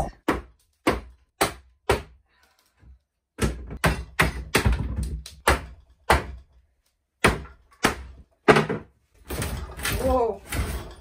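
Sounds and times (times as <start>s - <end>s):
hammer striking wooden cupboard: 0.2s - 2.2s, 3.4s - 6.4s, 7.2s - 8.9s.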